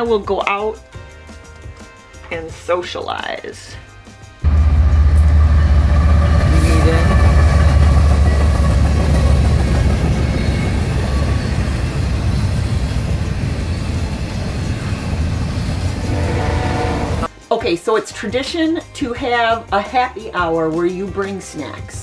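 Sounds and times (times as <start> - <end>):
diesel locomotive rumble: 4.4 - 17.3
freight cars rolling on rails: 4.5 - 17.3.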